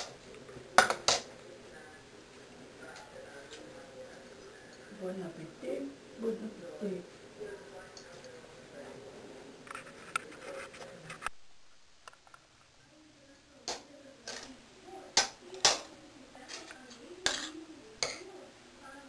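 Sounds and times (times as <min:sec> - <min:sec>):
cutlery clinking on ceramic plate: 0:16.5 - 0:18.3.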